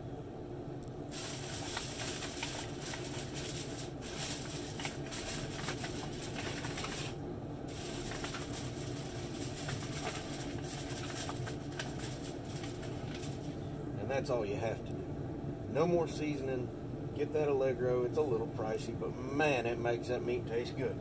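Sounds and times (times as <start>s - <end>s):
aluminium foil crinkling: 1.1s - 13.6s.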